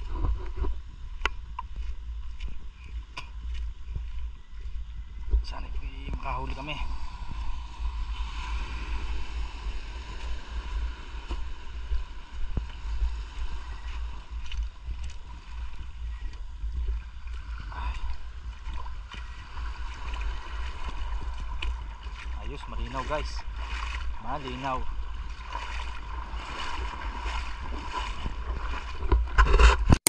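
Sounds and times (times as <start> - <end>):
faint steady hum: 0.0 - 29.4
low underwater rumble: 0.0 - 29.7
muffled water sloshing: 0.0 - 30.0.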